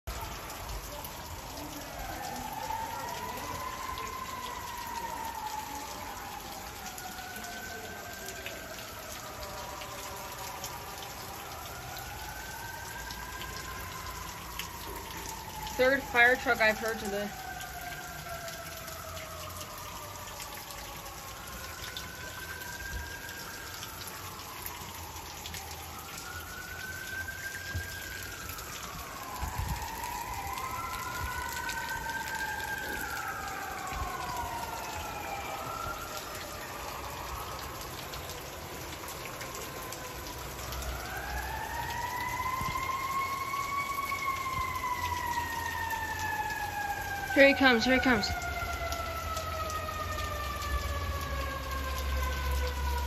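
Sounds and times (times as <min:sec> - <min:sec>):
fire truck sirens wailing: 0:00.0 - 0:53.0
steady rain hissing: 0:00.0 - 0:53.0.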